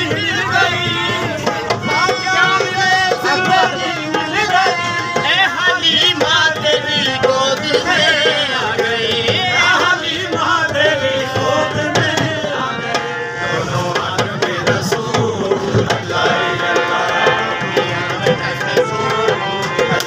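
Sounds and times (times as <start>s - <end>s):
harmonium: 0.0s - 20.0s
man singing: 0.0s - 20.0s
percussion steady beat: 0.0s - 20.0s.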